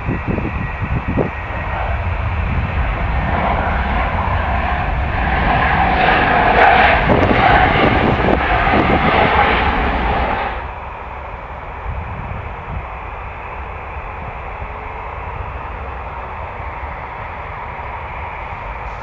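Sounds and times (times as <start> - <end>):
airliner engines running: 0.0 - 19.0
wind buffeting microphone: 0.0 - 19.0.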